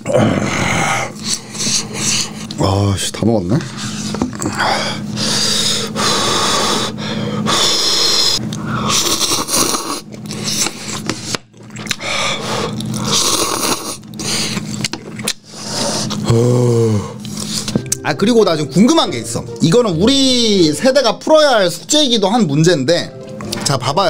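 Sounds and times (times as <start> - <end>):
person slurping noodles: 6.6 - 17.8.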